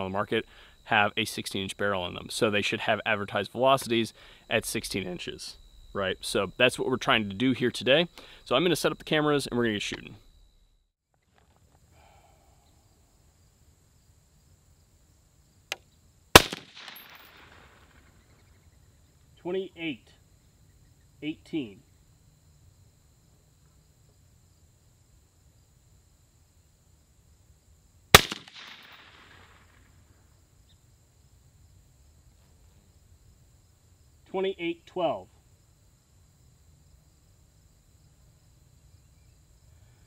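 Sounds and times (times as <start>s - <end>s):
rifle shot with echo: 16.3s - 18.1s, 28.1s - 29.9s.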